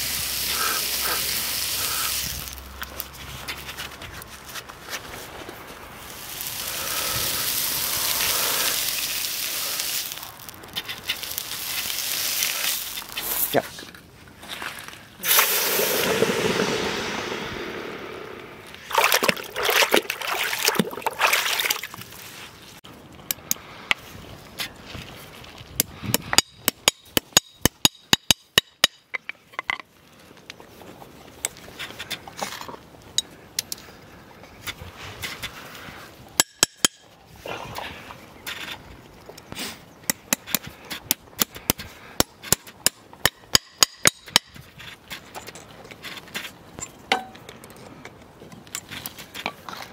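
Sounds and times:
sizzling and bubbling water: 0.0 - 2.8, 6.0 - 13.2, 15.2 - 22.3
hot metal quenching hiss: 6.1 - 10.4, 15.2 - 18.9
hammer tapping nails into horseshoe: 26.1 - 29.0, 40.1 - 44.6.

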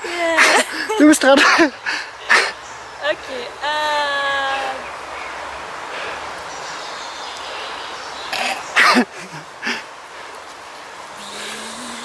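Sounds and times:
stream rushing: 0.0 - 12.0
low vocal hum: 11.1 - 12.0
vocal puffs: 11.1 - 12.0.

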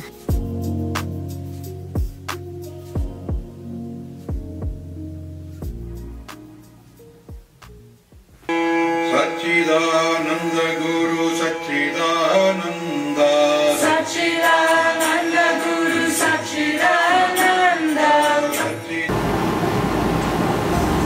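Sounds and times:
person singing: 8.6 - 19.1.

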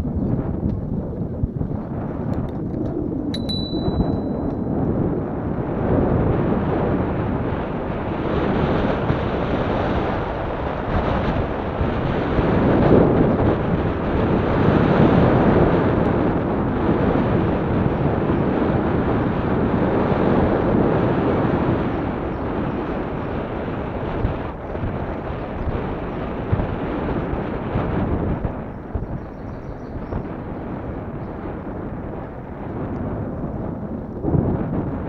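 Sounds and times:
wind buffeting microphone: 0.0 - 35.0
bicycle rolling on pavement: 4.2 - 29.2.

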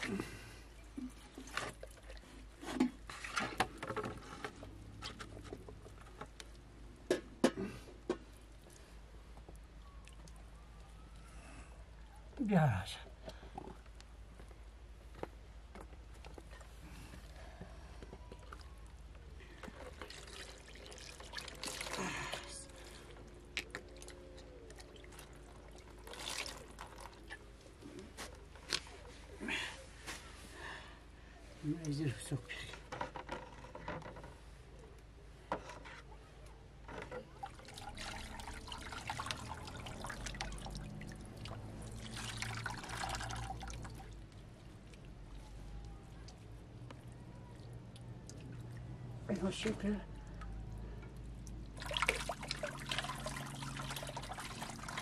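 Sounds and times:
water pouring and splashing: 0.9 - 6.0, 18.2 - 27.8, 36.9 - 45.4, 50.6 - 55.0
wet squelching of raw chicken: 16.3 - 29.4.

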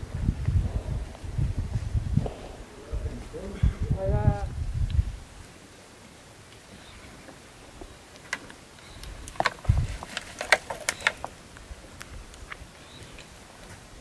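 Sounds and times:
plastic bottle crackling: 9.2 - 11.4.

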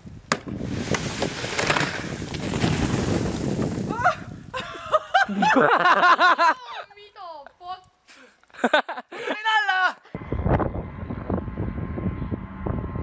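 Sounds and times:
snow sliding off roof: 0.5 - 6.5
person laughing loudly: 3.9 - 6.8, 8.5 - 9.8.

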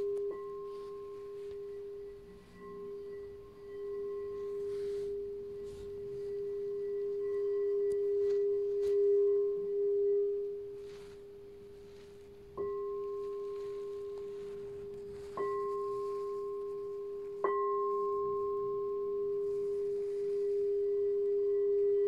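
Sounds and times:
singing bowl struck: 0.0 - 10.6, 12.5 - 22.0
singing bowl ringing: 0.0 - 22.0.

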